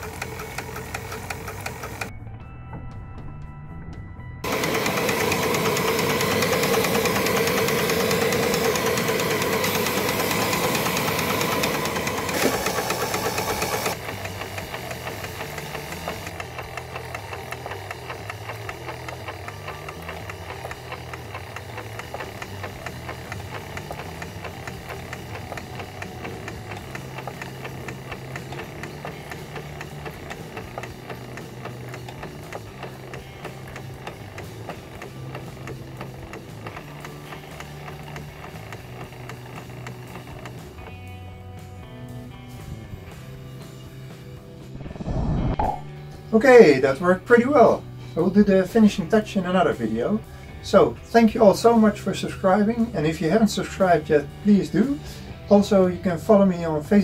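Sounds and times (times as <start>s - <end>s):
steam engine running: 0.0s - 2.1s, 4.4s - 42.0s
steam hissing: 4.5s - 16.3s.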